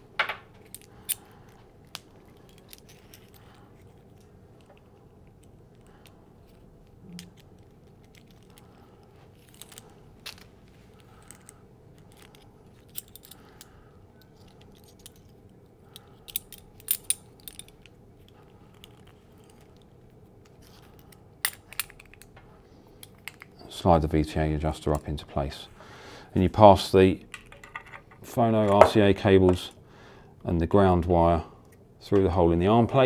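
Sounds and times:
small clicks and clatter of cables: 0:00.6 - 0:08.8.

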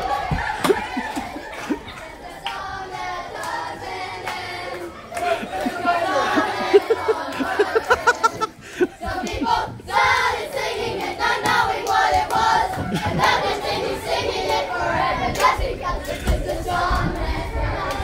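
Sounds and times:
children and adults chattering: 0:00.0 - 0:09.9.

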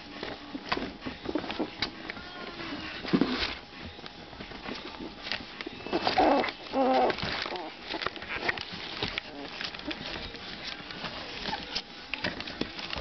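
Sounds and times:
paws scratching and bumping box: 0:02.7 - 0:13.0.

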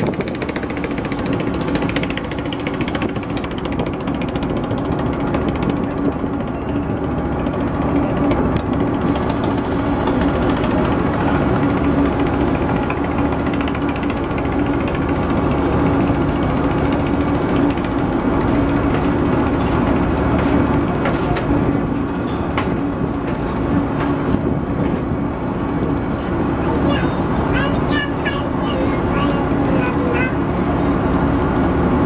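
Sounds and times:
boat engine running: 0:00.0 - 0:32.0.

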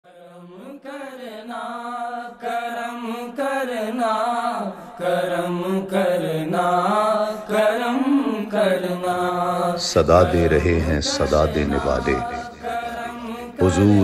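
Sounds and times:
man singing: 0:09.1 - 0:14.0.

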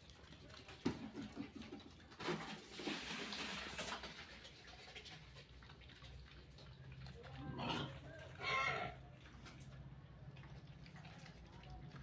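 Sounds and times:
piglets snuffling and munching: 0:00.0 - 0:12.0
piglet grunt: 0:07.4 - 0:09.0.

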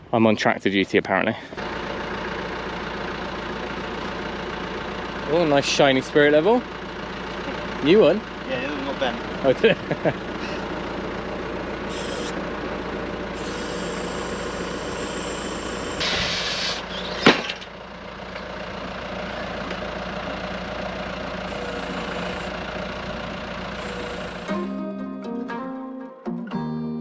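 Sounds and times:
diesel tractor engine running: 0:01.1 - 0:25.0
hydraulic hissing rush: 0:11.8 - 0:12.4, 0:13.3 - 0:17.5.

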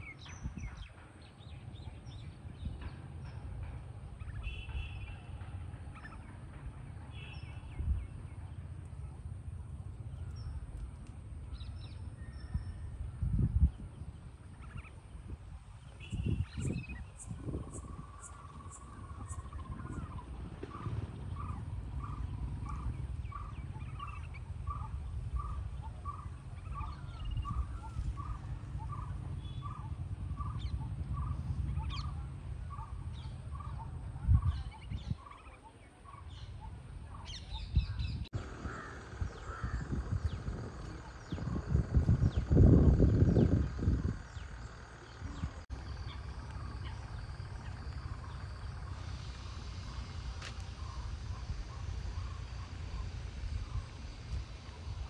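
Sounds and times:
steady low rumble: 0:05.2 - 0:55.0
small birds chirping: 0:13.5 - 0:55.0.

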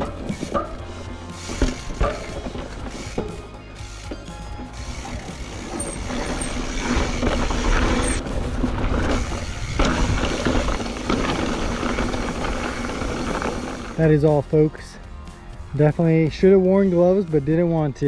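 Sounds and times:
bike clattering: 0:00.0 - 0:14.0
bike tyres crunching over gravel: 0:00.0 - 0:14.3.

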